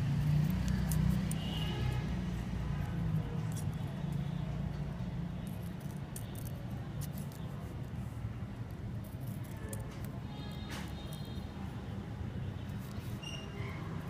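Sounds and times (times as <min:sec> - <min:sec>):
scissors snipping foil: 0:00.0 - 0:02.0, 0:05.5 - 0:07.8, 0:08.6 - 0:11.4.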